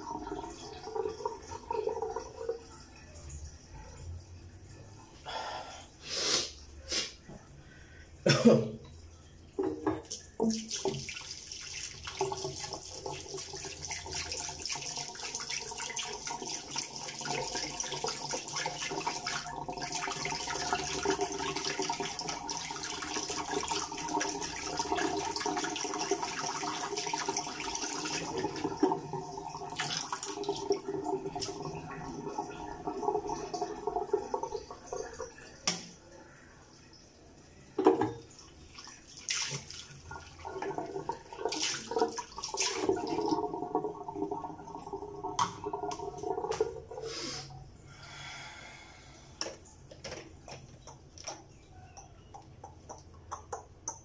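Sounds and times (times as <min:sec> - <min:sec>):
tap water running into sink: 0:09.6 - 0:36.0, 0:37.8 - 0:38.4, 0:39.2 - 0:47.0.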